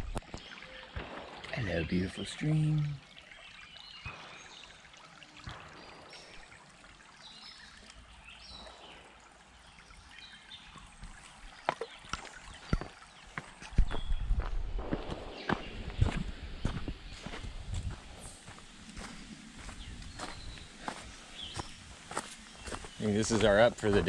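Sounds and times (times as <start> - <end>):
stream trickling over rocks: 0.0 - 24.0
footsteps on dirt path: 11.1 - 24.0.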